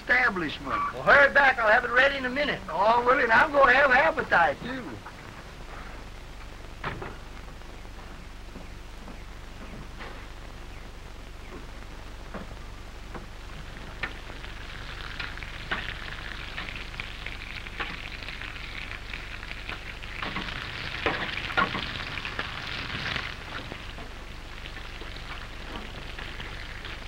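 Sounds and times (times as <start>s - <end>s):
bacon sizzling in a frying pan: 10.2s - 27.0s.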